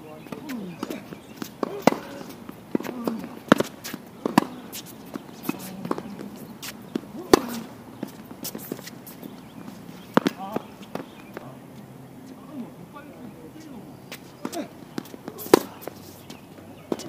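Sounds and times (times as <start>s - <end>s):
tennis ball bouncing on court: 0.2s - 11.5s, 13.7s - 17.0s
tennis ball hitting racket: 0.2s - 11.5s, 13.6s - 17.0s.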